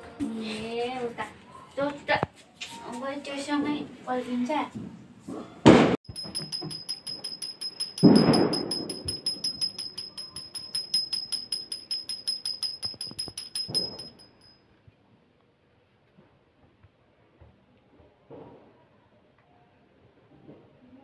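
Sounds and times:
brass hand bell ringing fast: 6.1s - 14.6s.

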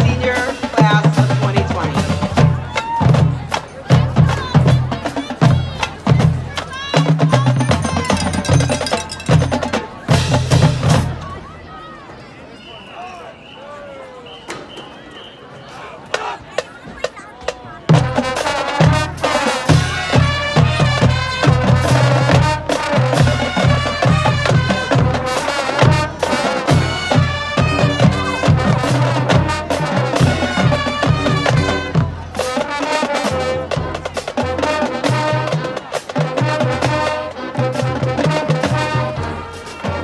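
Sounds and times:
drums striking sharply: 0.0s - 11.4s
marching band playing: 0.0s - 11.8s, 14.4s - 40.0s.

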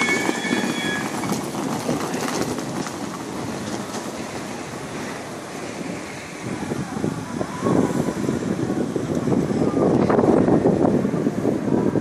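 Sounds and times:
wheeled suitcase rattling on stone: 0.0s - 4.2s
train station noise: 0.0s - 12.0s.

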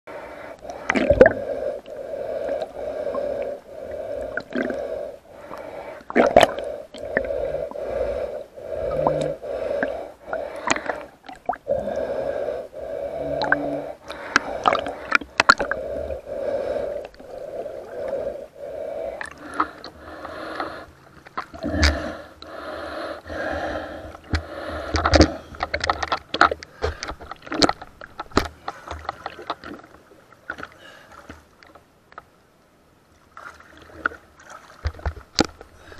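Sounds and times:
breathing through snorkel: 0.1s - 21.0s, 21.6s - 27.4s.

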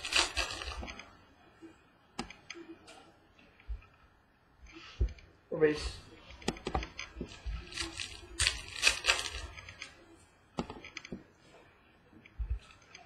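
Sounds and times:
card edges clicking and snapping: 0.0s - 1.0s, 6.4s - 9.9s
card stock sliding and rustling: 7.3s - 9.6s.

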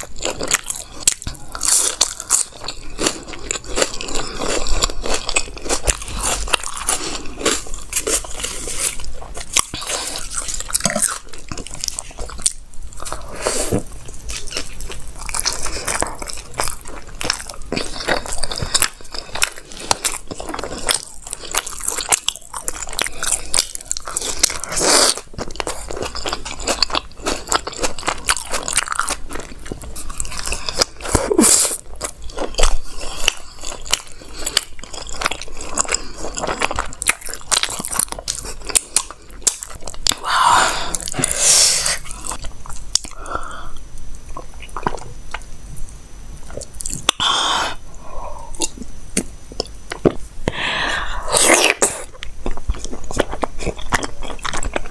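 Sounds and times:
small mouth clicks and crunches: 0.0s - 40.2s
person chewing and biting: 0.0s - 43.3s, 44.3s - 45.5s, 46.4s - 47.4s, 51.2s - 54.9s.

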